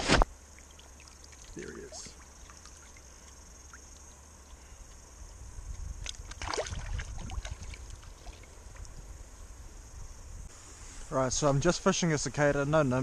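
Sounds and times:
water splashing and sloshing: 0.0s - 4.6s, 6.0s - 9.0s
cicadas droning: 0.0s - 13.0s.

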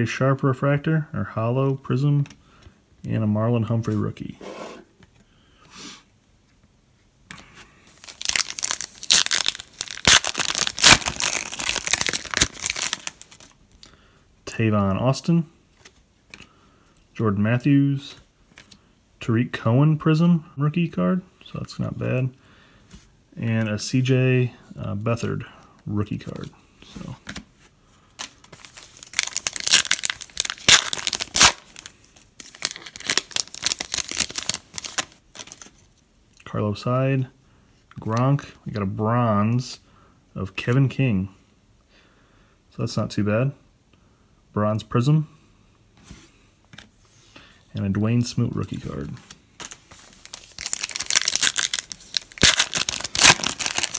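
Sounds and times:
foil wrapper crinkling and tearing: 7.9s - 13.6s, 28.2s - 35.8s, 49.6s - 53.9s.

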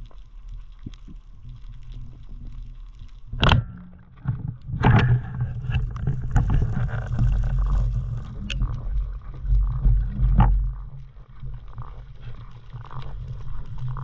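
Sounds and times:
water rushing and rubbing: 5.2s - 9.5s.

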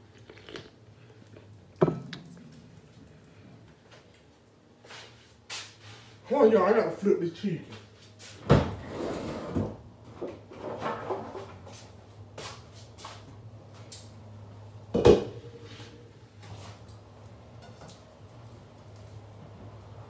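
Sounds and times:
cookware knocking: 1.8s - 2.2s.

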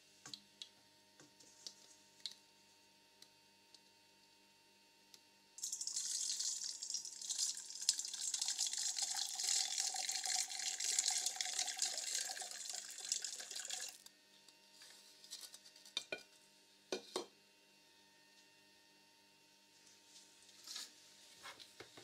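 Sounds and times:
water pouring into metal bowl: 5.6s - 14.0s.

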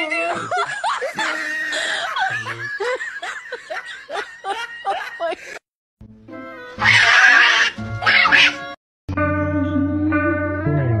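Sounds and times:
person giggling: 0.2s - 5.6s
music: 6.0s - 11.0s.

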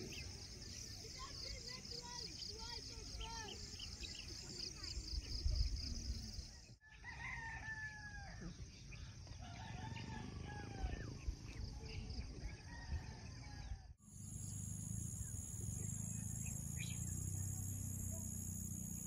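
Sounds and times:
roosters crowing: 6.8s - 8.4s, 9.4s - 11.2s
high-pitched insect buzz: 14.1s - 19.0s.

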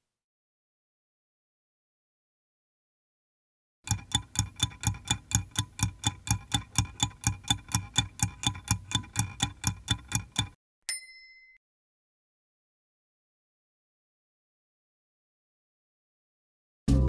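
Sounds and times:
stopwatch ticking: 3.9s - 10.6s
short ding: 10.9s - 11.6s.

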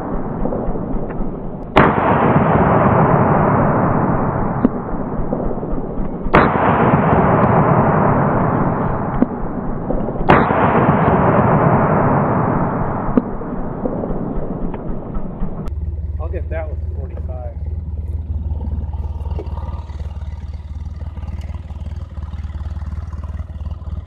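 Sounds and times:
loud gunshots: 0.0s - 15.7s.

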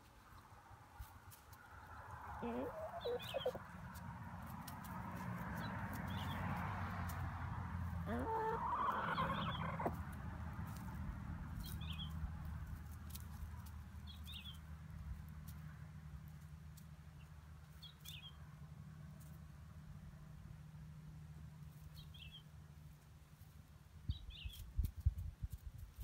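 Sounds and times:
hens clucking softly: 2.3s - 3.7s, 8.0s - 10.0s
hen rising call: 8.1s - 9.9s.

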